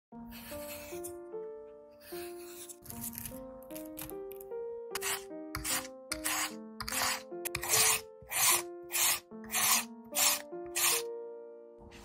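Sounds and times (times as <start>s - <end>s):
background music: 0.1s - 12.0s
potato rasping on mandoline slicer: 0.3s - 1.1s, 2.1s - 4.1s, 5.0s - 11.0s.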